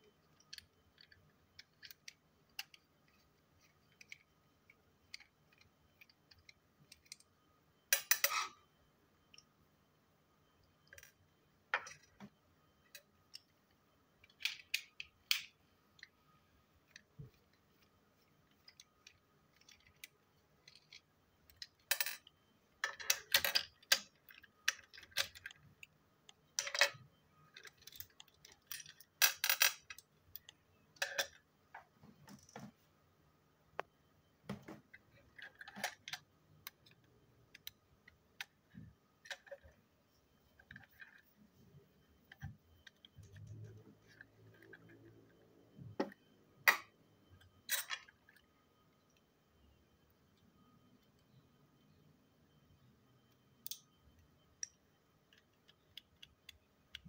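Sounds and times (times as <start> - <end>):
small pieces set on table: 0.0 - 57.0
plastic toy parts clicking: 0.2 - 7.3, 14.2 - 16.2, 16.8 - 31.4, 53.6 - 54.0.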